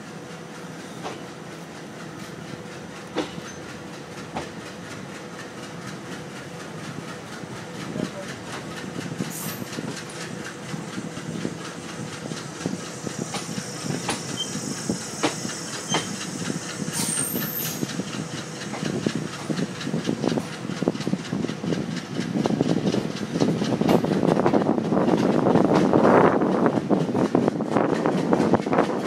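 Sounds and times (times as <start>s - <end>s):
train wheels clattering over joints: 0.1s - 29.0s
high wheel squeals: 13.6s - 16.2s, 16.9s - 17.9s.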